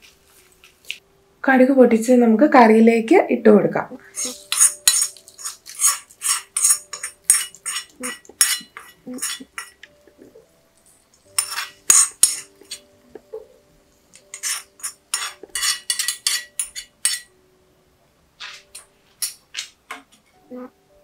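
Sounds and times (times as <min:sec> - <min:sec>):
spoon scraping and tapping pan: 0:04.2 - 0:10.0, 0:10.8 - 0:13.5, 0:14.1 - 0:17.3.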